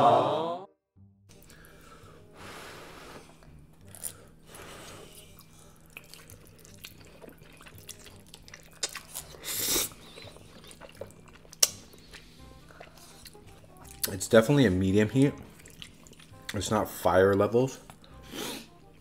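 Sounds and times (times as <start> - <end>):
noodles being slurped: 3.9 - 14.2
wet mouth clicks: 7.6 - 14.2.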